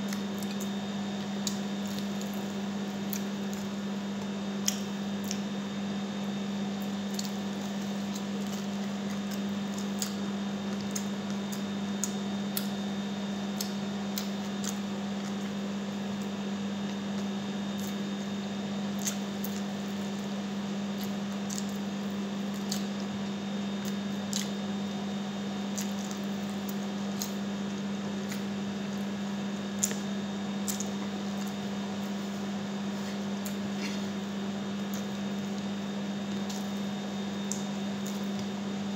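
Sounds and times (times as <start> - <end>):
steady low hum: 0.0 - 38.9
person chewing: 6.8 - 12.8, 13.5 - 15.6, 21.0 - 23.2, 23.8 - 24.6, 25.7 - 38.5.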